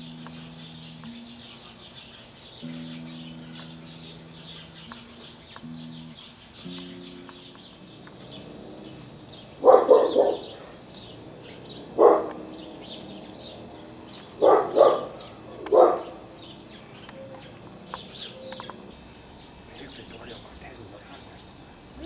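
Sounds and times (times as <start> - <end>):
small birds chirping: 0.0 - 22.0
dog barking: 9.6 - 10.8, 12.0 - 12.4, 14.4 - 16.2.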